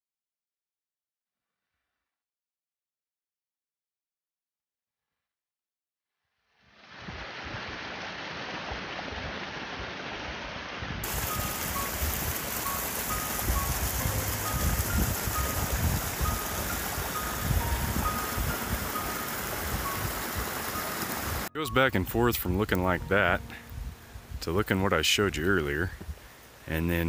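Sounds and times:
mountain stream rushing: 0:06.9 - 0:21.5
faint hiss: 0:11.0 - 0:21.5
soft background music: 0:11.0 - 0:25.9.

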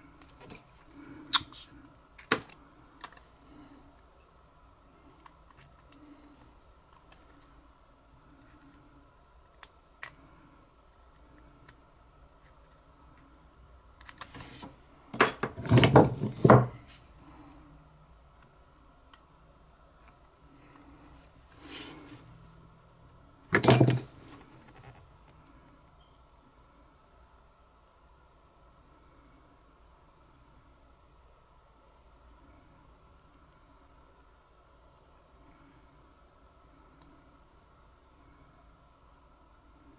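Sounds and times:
metal parts clattering: 0:23.5 - 0:24.2.

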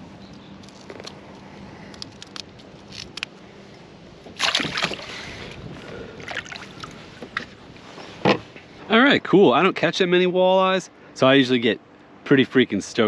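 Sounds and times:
fish splashing into water: 0:04.4 - 0:05.4, 0:06.2 - 0:07.0.

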